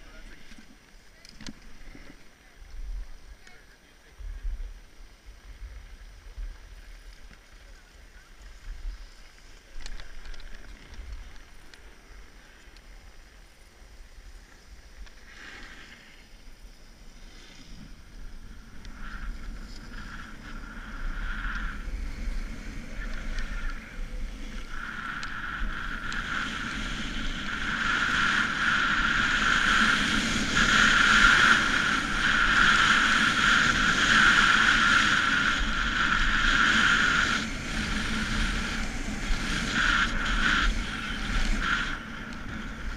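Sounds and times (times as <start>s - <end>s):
wind rushing over camera: 0.0s - 42.9s
skis scraping over snow: 3.1s - 42.9s.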